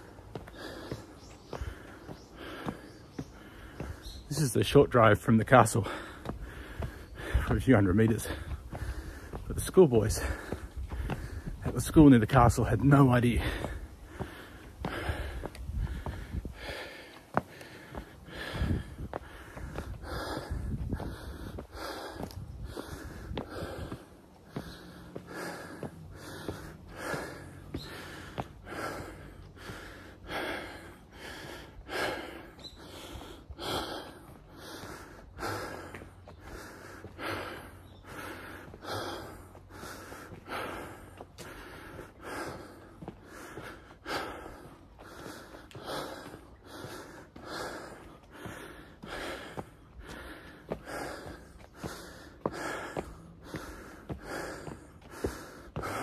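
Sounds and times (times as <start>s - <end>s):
person breathing hard: 0.0s - 4.8s, 5.5s - 56.0s.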